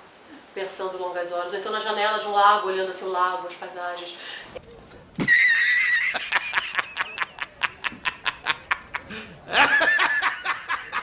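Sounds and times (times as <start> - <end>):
man laughing hysterically: 5.2 - 11.0.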